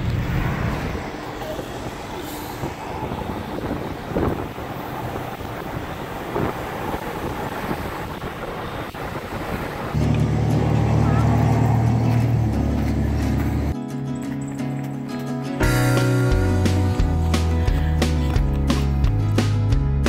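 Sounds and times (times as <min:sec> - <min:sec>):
wind buffeting car cabin: 0:00.0 - 0:13.8
tyre hum: 0:10.0 - 0:19.6.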